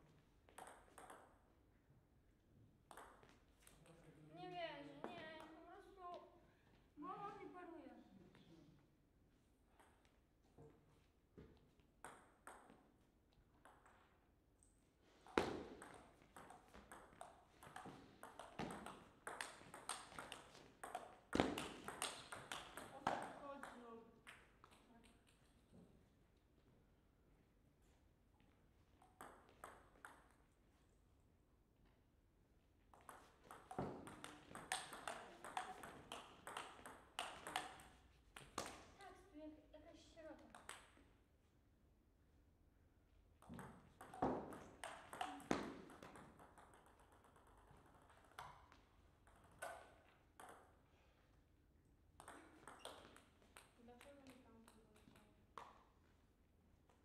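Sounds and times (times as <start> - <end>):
ball clicking off bats and table: 0.5 - 1.4, 2.9 - 3.8, 15.3 - 25.4, 32.9 - 38.9, 43.4 - 50.8, 52.2 - 55.8
table tennis ball bouncing: 0.5 - 1.5, 2.8 - 4.0, 9.7 - 10.2, 12.0 - 14.2, 15.2 - 25.8, 29.0 - 30.5, 32.9 - 39.0, 40.4 - 41.1, 43.3 - 50.9, 52.2 - 56.1.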